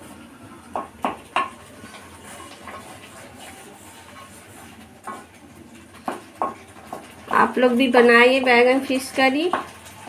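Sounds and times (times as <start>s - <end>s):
spatula scraping pan softly: 1.6s - 7.3s.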